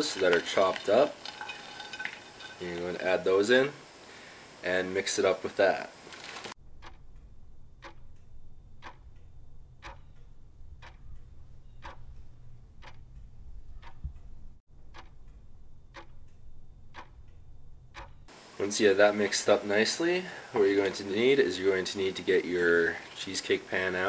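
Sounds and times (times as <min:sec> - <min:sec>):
clock ticking: 0:06.6 - 0:18.3
low steady hum: 0:06.6 - 0:24.0.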